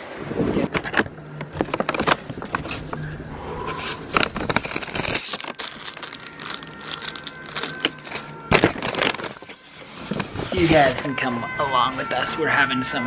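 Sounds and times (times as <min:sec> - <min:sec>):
shopping bag rustling: 0:04.2 - 0:11.1.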